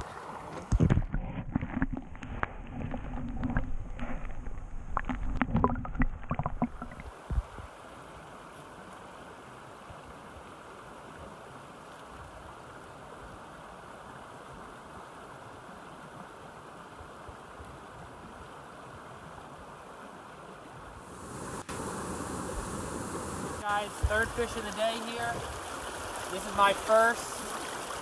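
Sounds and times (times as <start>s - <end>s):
muffled underwater rushing water: 0.0s - 28.0s
stream flowing over rocks: 0.0s - 28.0s
sharp underwater clicks and knocks: 0.5s - 7.4s.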